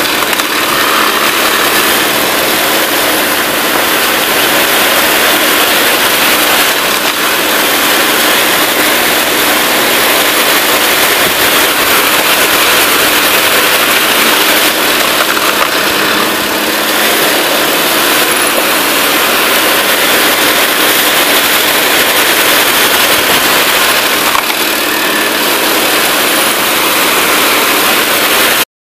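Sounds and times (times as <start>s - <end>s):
wood splitter engine running: 0.0s - 28.7s.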